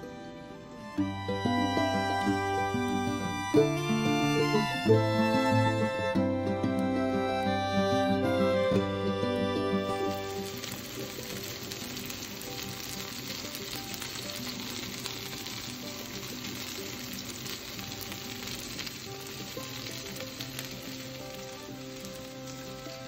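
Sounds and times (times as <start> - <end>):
soft background music: 0.0 - 23.0
fish sizzling in a pan: 1.4 - 6.2, 9.8 - 23.0.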